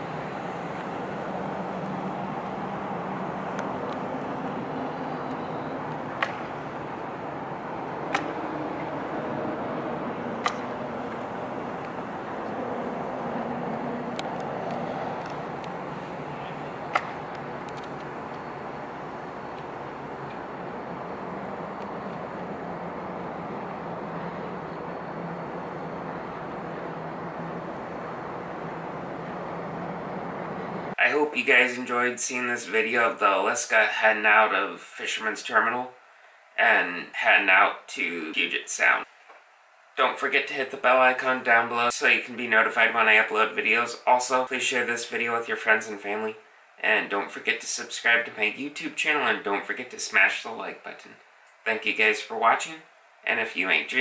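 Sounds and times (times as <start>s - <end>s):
background noise: 0.0s - 54.0s
distant engines and traffic: 0.0s - 54.0s
sharp clicks: 10.4s - 12.6s, 16.9s - 18.4s.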